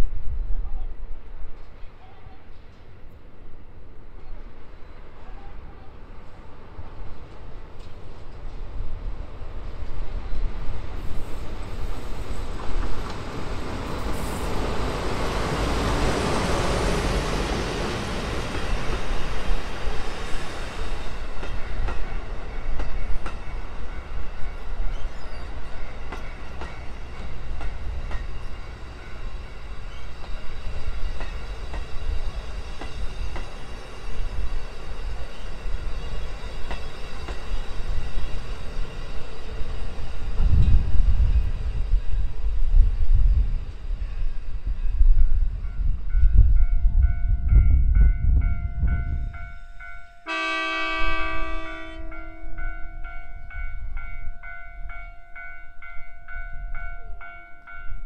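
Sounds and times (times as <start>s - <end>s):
diesel locomotive passing: 0.0s - 58.0s
train wheels clattering: 15.9s - 40.9s.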